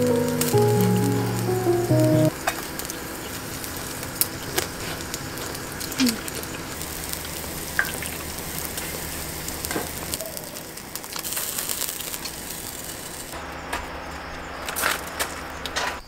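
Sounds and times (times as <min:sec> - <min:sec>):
meat sizzling on grill: 0:03.6 - 0:13.3.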